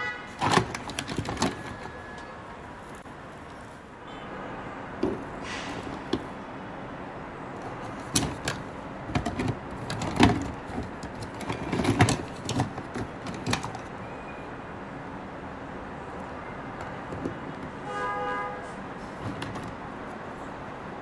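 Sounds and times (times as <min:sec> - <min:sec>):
toys clicking and knocking: 0:00.4 - 0:02.3, 0:07.6 - 0:14.0.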